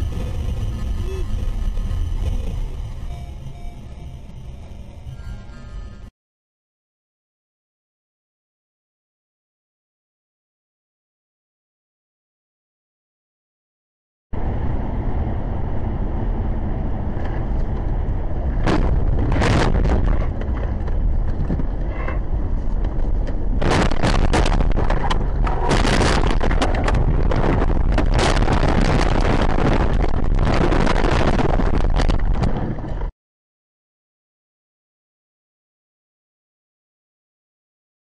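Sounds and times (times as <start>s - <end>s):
car rumble: 0.0s - 6.1s, 14.4s - 33.1s
car banging and scraping: 17.1s - 33.1s.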